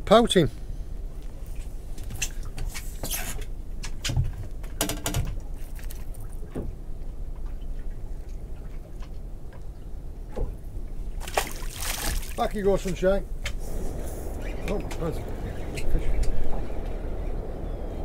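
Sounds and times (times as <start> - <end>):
low steady rumble: 0.0 - 18.0.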